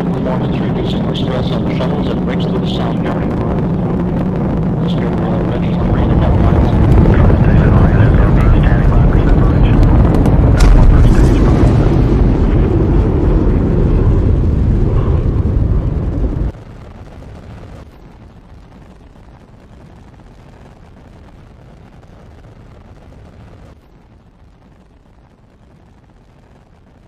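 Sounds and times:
faint steady hiss: 0:00.0 - 0:14.3
rocket exhaust rumble: 0:00.0 - 0:27.0.

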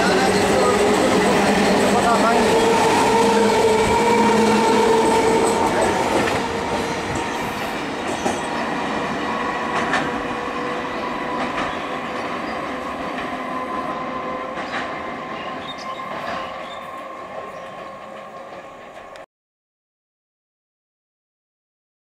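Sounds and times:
electric train whine: 0:00.0 - 0:19.2
wheels clicking over rail joints: 0:05.0 - 0:10.4, 0:11.1 - 0:13.6.

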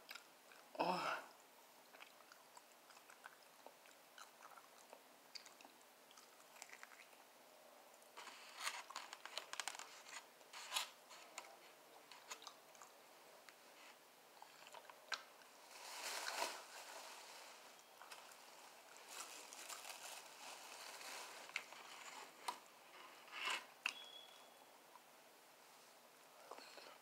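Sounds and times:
chewing and crunching food: 0:00.0 - 0:00.8, 0:01.8 - 0:07.3, 0:11.1 - 0:13.6, 0:14.3 - 0:15.6, 0:17.0 - 0:22.7
rustling: 0:08.1 - 0:12.5, 0:14.6 - 0:23.8.

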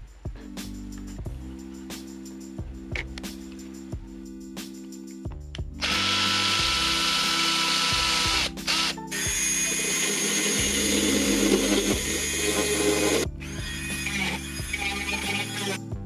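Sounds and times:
power drill boring into plastic: 0:05.8 - 0:15.8.

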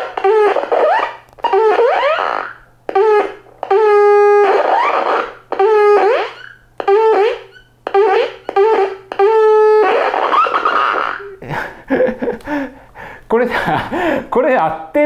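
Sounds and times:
buzzy electronic horn beeps: 0:00.0 - 0:11.4.

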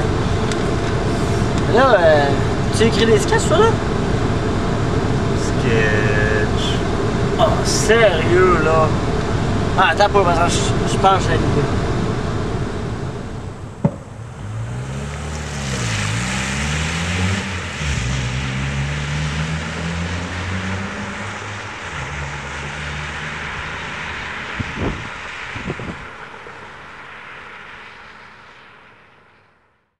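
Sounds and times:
car engine driving away: 0:00.0 - 0:29.4
tyre hiss on wet road: 0:01.0 - 0:01.6, 0:14.4 - 0:18.4
sharp thump: 0:13.8 - 0:14.2.

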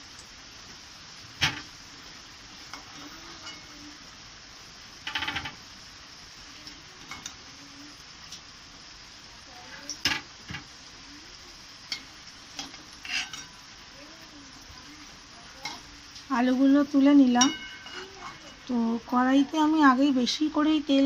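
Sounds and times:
oil sizzling: 0:00.0 - 0:21.0
spatula scraping metal pan: 0:02.7 - 0:03.7, 0:11.9 - 0:13.6, 0:17.3 - 0:18.7.

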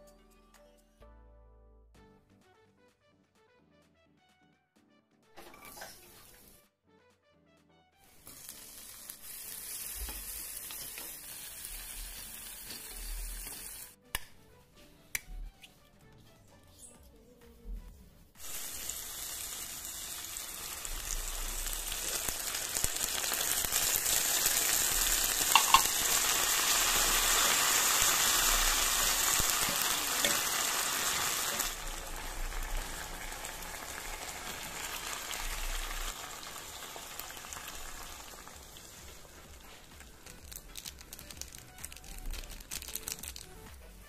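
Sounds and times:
food sizzling in a frying pan: 0:05.4 - 0:06.6, 0:08.1 - 0:14.0, 0:18.4 - 0:43.5.

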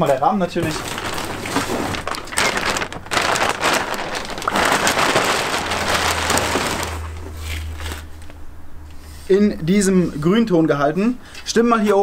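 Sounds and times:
plastic bag crinkling: 0:00.6 - 0:08.3.

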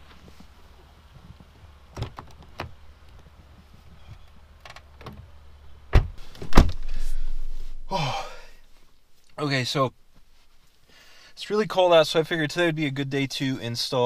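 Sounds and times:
low steady rumble: 0:00.0 - 0:10.9
car door opening: 0:05.9 - 0:06.9
car door shutting: 0:05.9 - 0:07.0.

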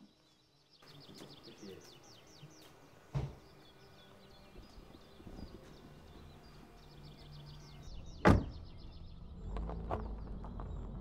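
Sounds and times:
small bird chirping: 0:00.0 - 0:11.0
sharp knock: 0:03.1 - 0:03.5.

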